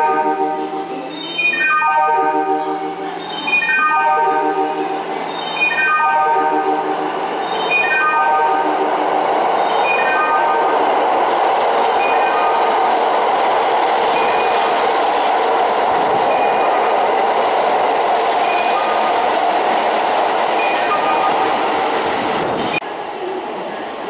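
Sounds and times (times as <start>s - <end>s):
train wheels rushing on rail: 6.7s - 24.0s.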